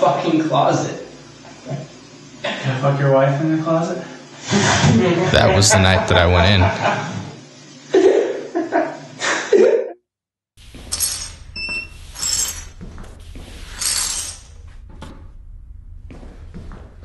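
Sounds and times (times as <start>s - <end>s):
broom sweeping hard floor: 10.6s - 14.8s
glass clinking: 10.9s - 11.4s.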